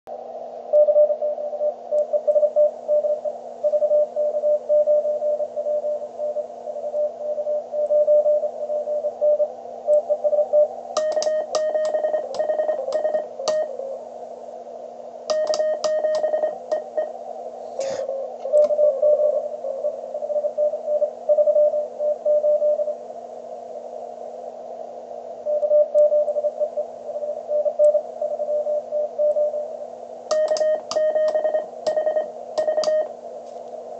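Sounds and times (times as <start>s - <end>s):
steady hum and receiver hiss: 0.1s - 33.9s
morse code tones: 10.0s - 14.0s, 15.3s - 17.2s, 30.3s - 33.1s.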